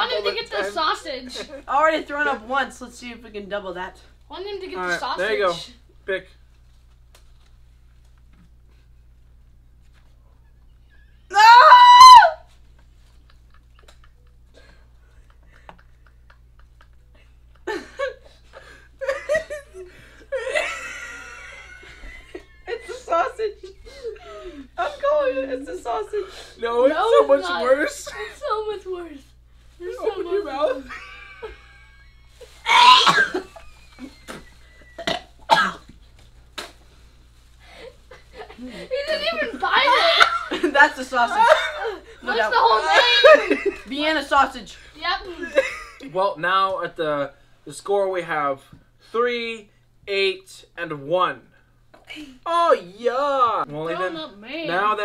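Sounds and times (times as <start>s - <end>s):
high-pitched yell: 11.3s - 12.5s, 32.4s - 33.4s
person coughing and gagging: 32.7s - 33.5s, 35.0s - 35.9s.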